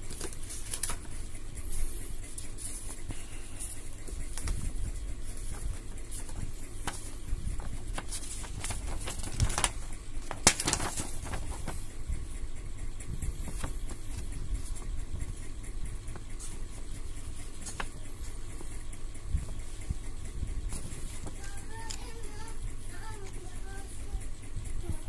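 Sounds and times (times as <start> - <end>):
paper rustling and crackling: 0.0 - 12.0, 13.3 - 14.9, 16.2 - 18.8
low steady rumble: 0.0 - 25.0.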